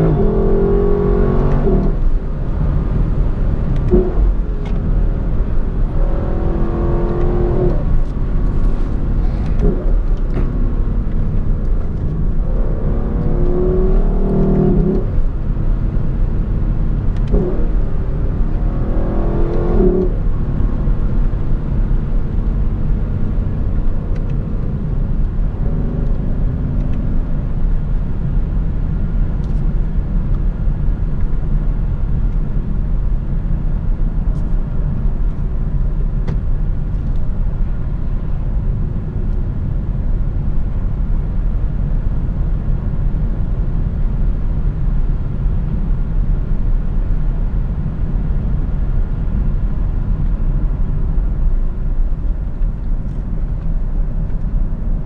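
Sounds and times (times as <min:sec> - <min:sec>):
car engine pulling hard: 0:00.0 - 0:33.6
wind and road noise: 0:00.0 - 0:55.0.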